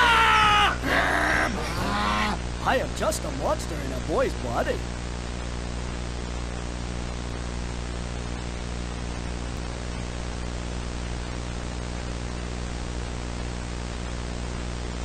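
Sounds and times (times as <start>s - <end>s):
low electrical hum: 0.0s - 15.0s
video static hiss: 0.0s - 15.0s.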